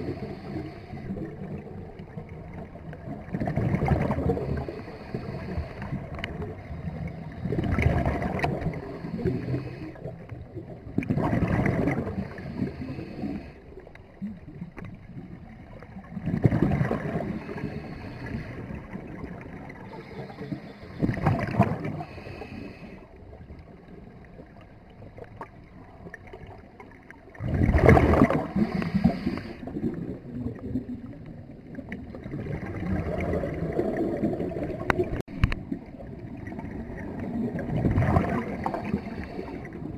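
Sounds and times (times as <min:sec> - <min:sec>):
diver exhaling bubbles underwater: 0:03.0 - 0:13.5, 0:16.0 - 0:20.3, 0:21.0 - 0:22.4, 0:27.4 - 0:39.9.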